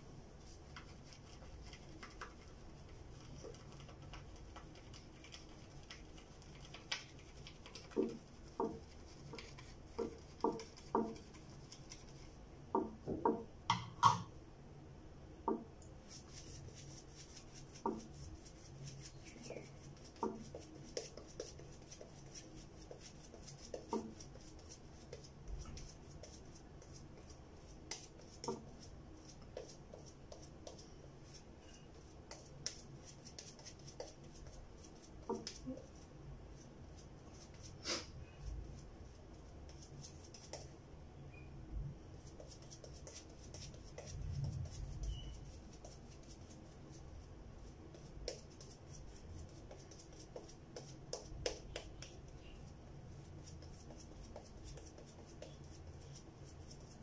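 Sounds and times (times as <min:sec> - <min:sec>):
brush clicks and bristly hiss: 0:00.4 - 0:12.4, 0:15.8 - 0:38.0, 0:38.6 - 0:40.8, 0:42.2 - 0:57.0
brush knocking against bowl: 0:09.9 - 0:11.4, 0:12.7 - 0:14.3.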